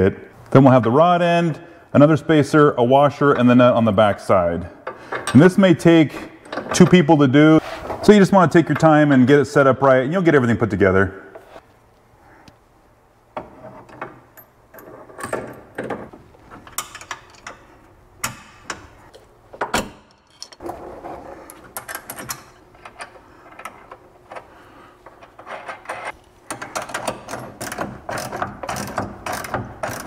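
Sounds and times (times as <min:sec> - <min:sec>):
metal hardware clinking and knocking: 0:19.6 - 0:20.6.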